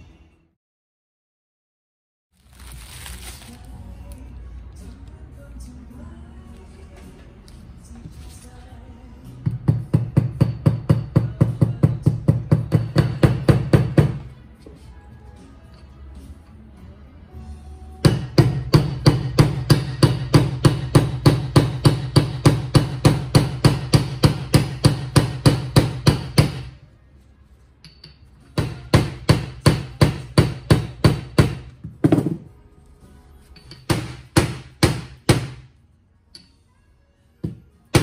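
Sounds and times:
hammer striking metal socket: 0:33.6 - 0:34.0.

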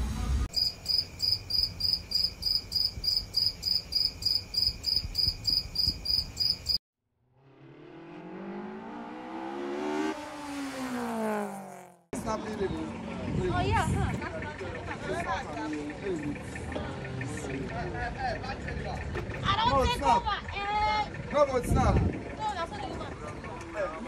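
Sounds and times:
high repeated chirping tone: 0:00.5 - 0:06.8
car engine revving: 0:07.2 - 0:13.7.

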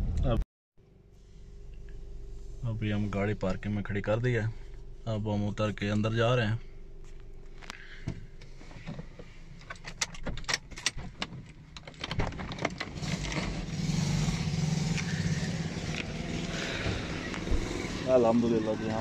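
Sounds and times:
steady noise with low hum: 0:00.0 - 0:19.0
car keys jangling and clicking: 0:09.6 - 0:13.4.

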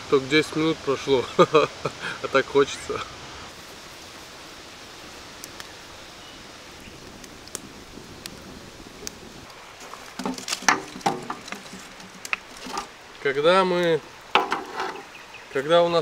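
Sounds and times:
wood fire crackling: 0:00.0 - 0:16.0
burning wood poked with stick: 0:09.8 - 0:13.0, 0:13.8 - 0:15.1.

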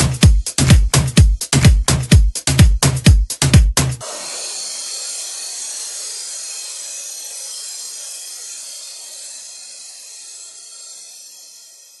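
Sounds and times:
bright electronic hiss: 0:04.0 - 0:12.0.

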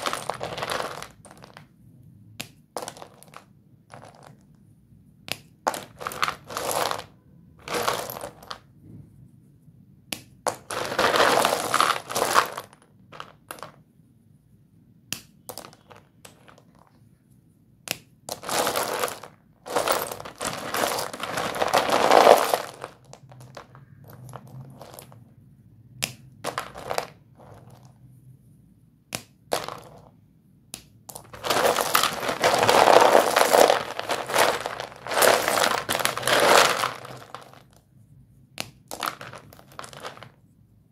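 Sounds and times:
chalk sticks clattering in plastic tub: 0:18.3 - 0:23.7, 0:31.1 - 0:37.8, 0:38.9 - 0:40.3.

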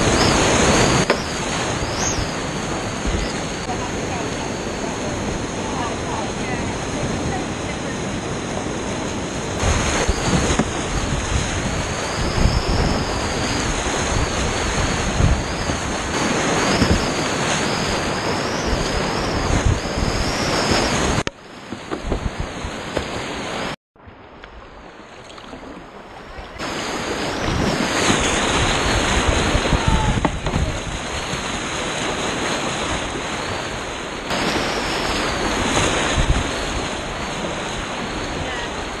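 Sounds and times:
paddle splashing: 0:00.0 - 0:23.8, 0:24.8 - 0:39.0
river rapids rushing: 0:25.6 - 0:39.0.

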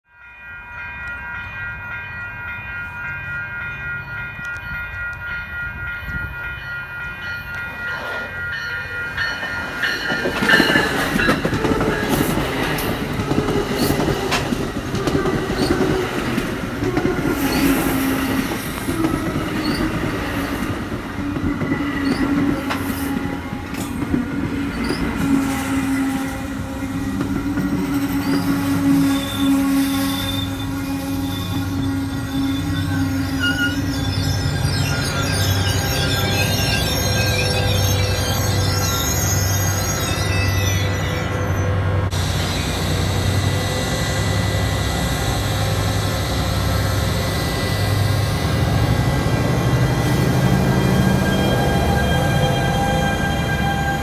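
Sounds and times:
level crossing bells ringing: 0:00.1 - 0:12.6, 0:31.3 - 0:41.6
train rail noise: 0:00.1 - 0:54.0
high wheel squeals: 0:16.9 - 0:20.5, 0:21.5 - 0:54.0.

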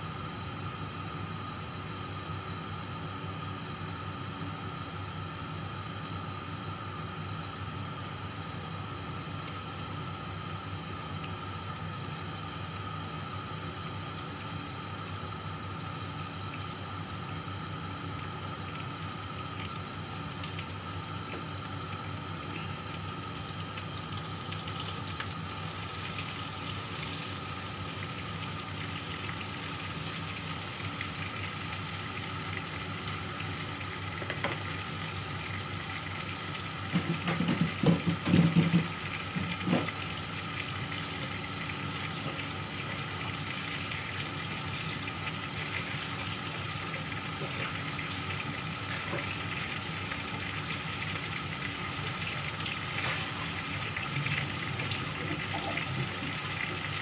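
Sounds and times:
chicken sizzling in hot oil: 0:00.0 - 0:57.0.

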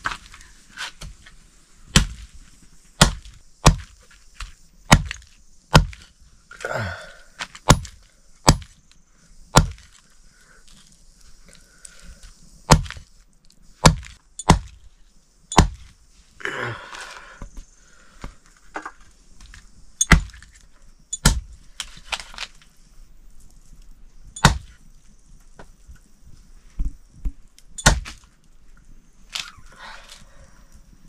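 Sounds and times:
blade chopping meat and bone: 0:02.0 - 0:02.2, 0:03.0 - 0:04.0, 0:04.9 - 0:06.0, 0:07.7 - 0:08.7, 0:09.6 - 0:09.9, 0:12.7 - 0:13.0, 0:13.8 - 0:14.8, 0:15.5 - 0:15.8, 0:20.0 - 0:20.3, 0:21.2 - 0:21.5, 0:24.4 - 0:24.7, 0:27.8 - 0:28.2.

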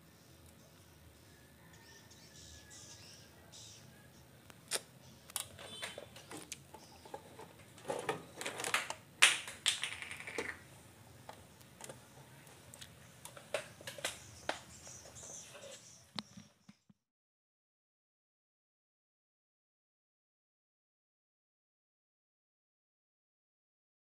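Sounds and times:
wires and circuit board clicking: 0:04.5 - 0:07.2.

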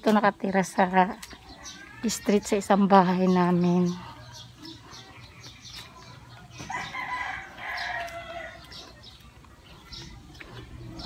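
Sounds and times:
small birds chirping: 0:00.0 - 0:11.0
rooster crowing: 0:06.7 - 0:08.6.

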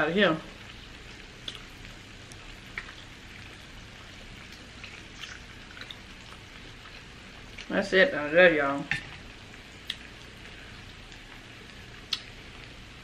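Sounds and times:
steady low hiss: 0:00.0 - 0:13.0
crab shell crackling: 0:00.7 - 0:07.6.

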